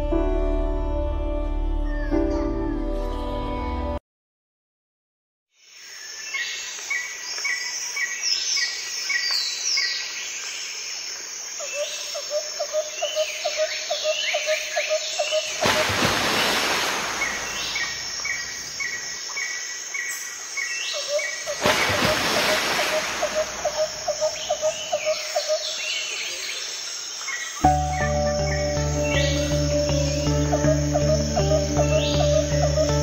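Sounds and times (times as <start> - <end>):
downward-sweeping bird calls: 11.6 - 26.6, 27.3 - 33.0
birds chirping: 13.0 - 33.0.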